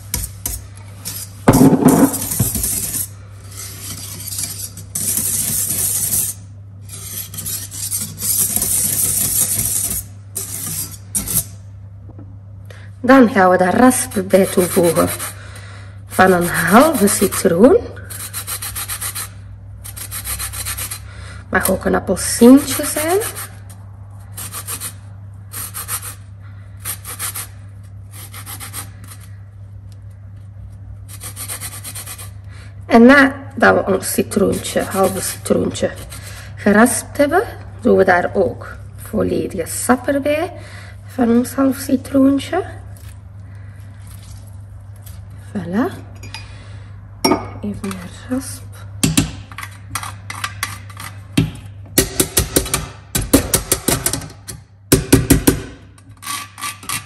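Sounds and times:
loud knock: 1.5s - 2.2s
whisk scraping metal bowl: 2.1s - 11.6s, 13.8s - 15.4s, 16.1s - 29.4s, 31.1s - 32.4s, 34.0s - 36.3s.

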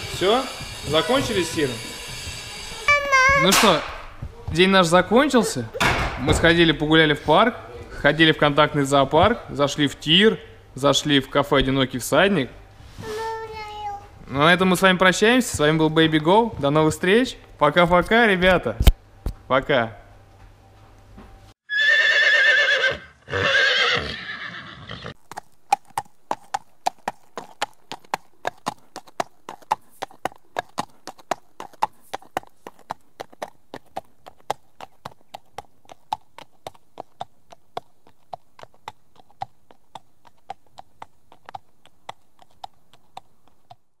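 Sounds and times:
hooves clip-clopping: 0.0s - 10.1s, 14.5s - 18.6s, 25.1s - 43.9s
horse whinnying: 21.7s - 25.2s.

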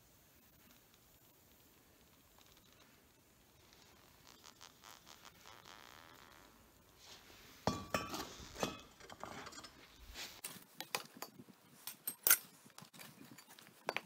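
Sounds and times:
metal scraping: 7.0s - 10.4s
metal crucible clanking on steel: 7.7s - 9.8s.

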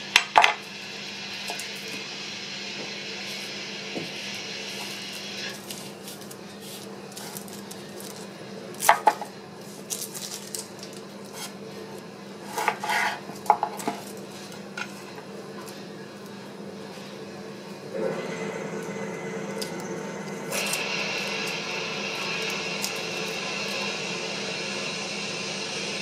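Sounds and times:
low hum: 14.6s - 26.0s.

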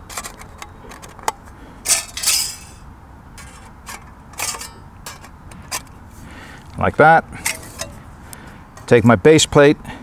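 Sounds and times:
metal plates clinking and scraping: 0.0s - 2.8s, 3.4s - 5.9s, 7.4s - 8.0s.

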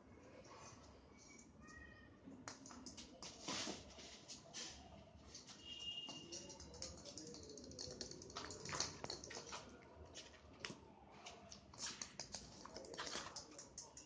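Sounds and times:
kitten claws tapping on concrete: 2.4s - 3.3s, 5.7s - 9.8s, 11.6s - 14.0s.

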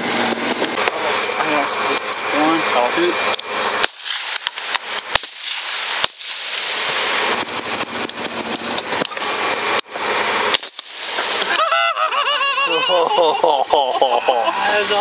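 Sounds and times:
steady hiss: 0.9s - 15.0s
rifle shots: 3.8s - 8.3s, 10.4s - 11.6s.

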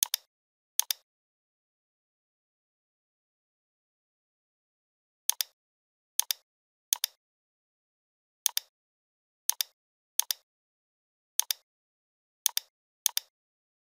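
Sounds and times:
computer mouse clicking: 0.0s - 1.0s, 5.3s - 5.6s, 6.2s - 6.4s, 7.0s - 7.2s, 8.5s - 8.7s, 9.5s - 10.4s, 11.4s - 11.6s, 12.4s - 13.3s.

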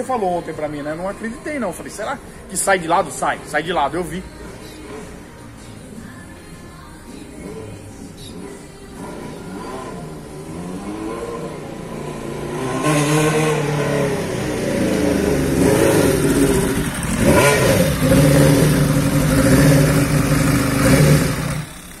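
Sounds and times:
motorcycle engine approaching: 8.4s - 22.0s.

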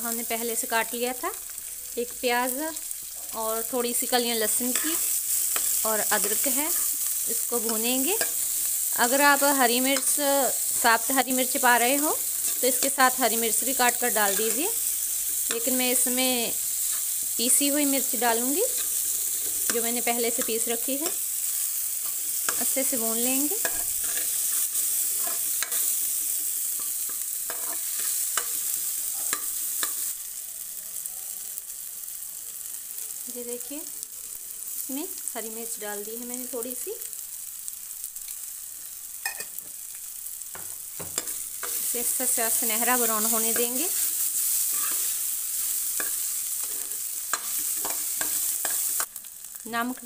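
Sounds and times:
onion sizzling in hot fat: 0.0s - 50.0s
metal ladle scraping a pan: 23.6s - 29.5s, 43.6s - 45.2s, 46.0s - 49.0s.

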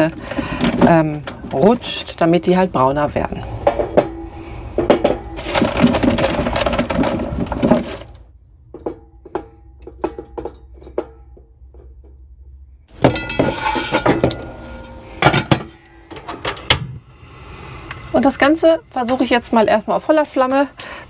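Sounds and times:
metal tray clatter: 0.0s - 8.2s, 12.9s - 16.7s
lid knocking: 13.0s - 16.3s.

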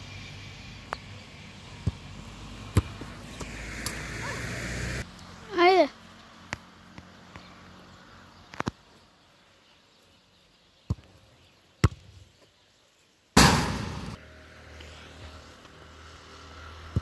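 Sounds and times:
football being kicked: 1.8s - 2.0s, 2.7s - 3.5s, 11.8s - 12.2s.

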